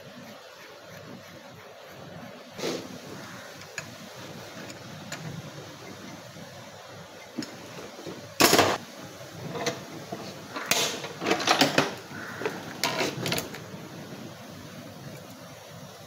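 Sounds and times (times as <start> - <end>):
metal tools clanking: 9.4 - 13.6.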